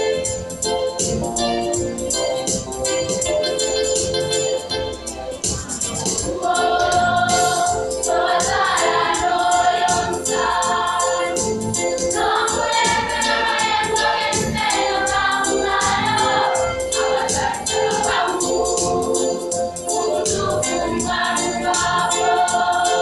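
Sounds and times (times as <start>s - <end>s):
steady beat: 0.0s - 23.0s
choir singing: 6.2s - 23.0s.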